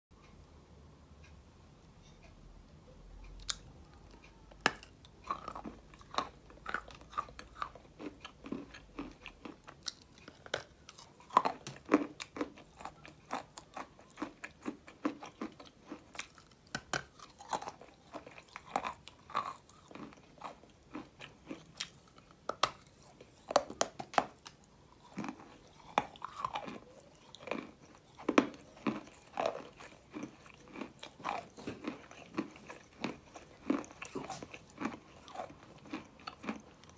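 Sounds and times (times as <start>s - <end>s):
clay being chewed crunching: 3.3s - 36.9s.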